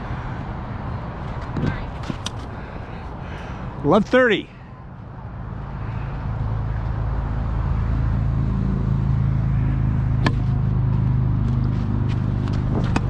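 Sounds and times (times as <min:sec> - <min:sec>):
engine humming: 0:00.0 - 0:13.0
tennis ball being struck: 0:10.2 - 0:10.5.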